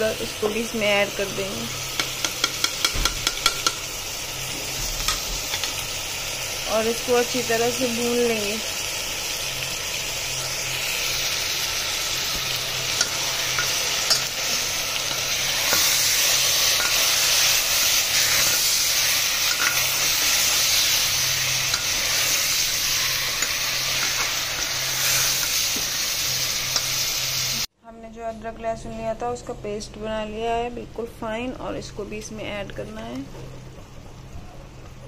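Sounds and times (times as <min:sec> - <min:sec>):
food sizzling in hot oil: 0:00.0 - 0:27.7.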